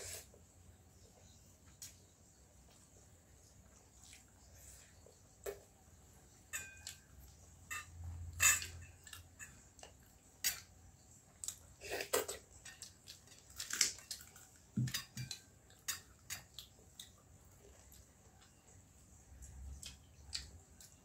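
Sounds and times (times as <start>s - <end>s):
chewing: 2.6s - 5.6s, 8.7s - 21.0s.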